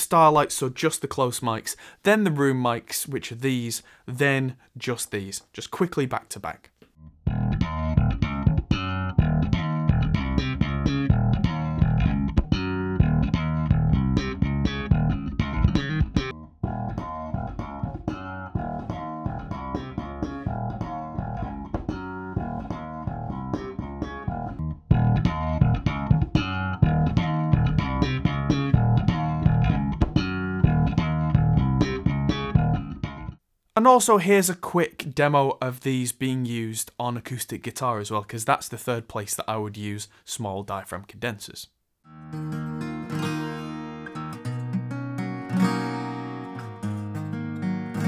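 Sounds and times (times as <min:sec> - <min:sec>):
electric bass guitar: 0:06.9 - 0:33.4.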